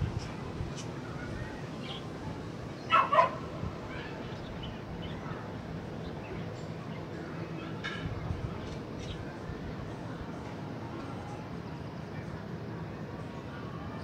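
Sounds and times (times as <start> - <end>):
low outdoor rumble: 0.0 - 14.0
dog barking: 2.9 - 3.4.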